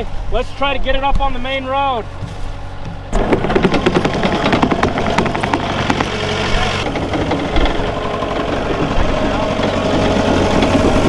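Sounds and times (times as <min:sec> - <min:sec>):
diesel engine running: 0:01.9 - 0:11.0
rapid rattling clicks and knocks: 0:02.2 - 0:11.0.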